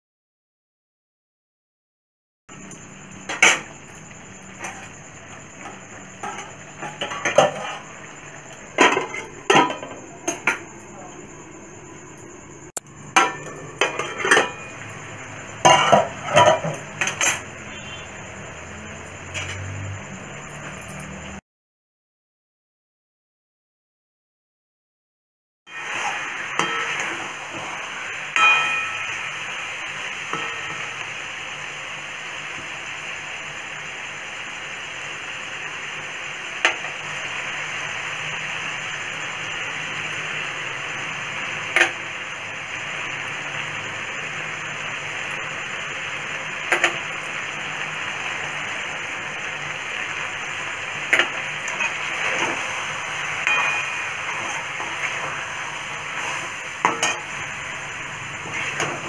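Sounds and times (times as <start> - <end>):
chicken and onions sizzling: 2.5 - 21.4, 25.7 - 59.0
metal ladle knocking pan: 13.1 - 14.8, 15.6 - 17.4, 28.4 - 29.2, 53.4 - 55.1, 56.8 - 57.3.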